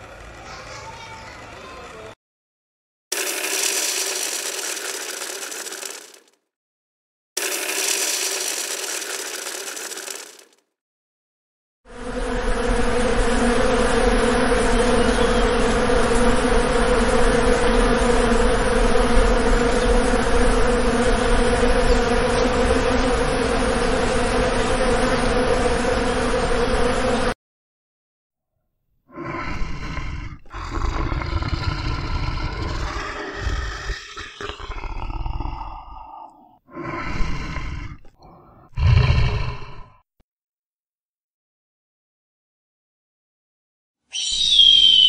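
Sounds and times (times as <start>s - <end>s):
bee buzzing: 3.1s - 6.3s, 7.4s - 10.5s, 11.9s - 27.4s.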